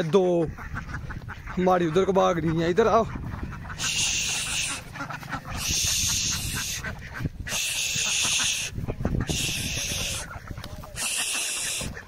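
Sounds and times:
ducks: 0:00.0 - 0:12.0
high hissing buzz: 0:03.8 - 0:04.8, 0:07.5 - 0:08.7.

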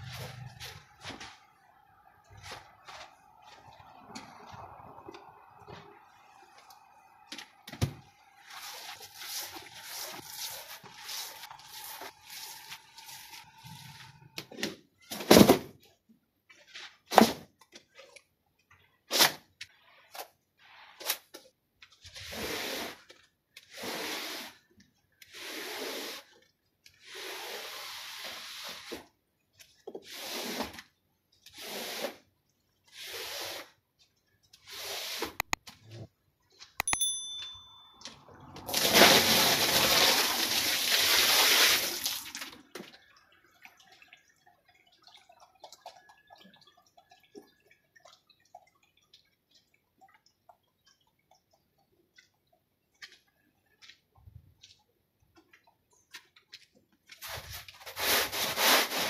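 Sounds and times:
stiff brush scrubbing wet rug: 0:08.4 - 0:14.0, 0:22.1 - 0:24.7, 0:25.3 - 0:26.4, 0:31.5 - 0:32.3, 0:32.9 - 0:33.8, 0:57.1 - 0:59.0.

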